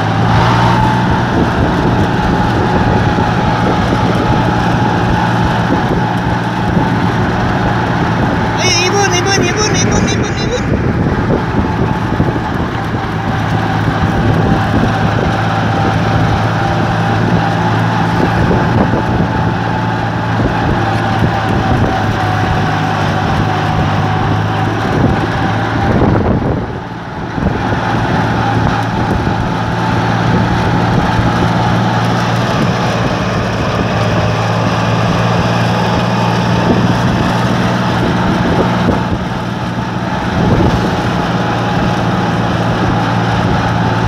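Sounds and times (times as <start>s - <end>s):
tractor engine running: 0.0s - 44.0s.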